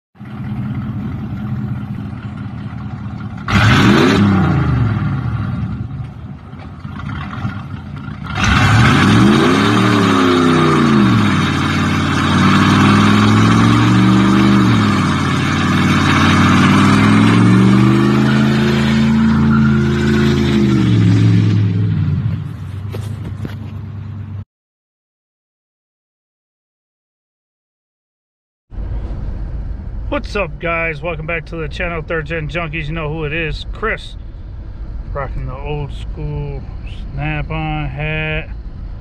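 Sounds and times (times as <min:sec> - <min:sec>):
car engine idling and revving: 0:00.2 - 0:24.4, 0:28.7 - 0:39.0.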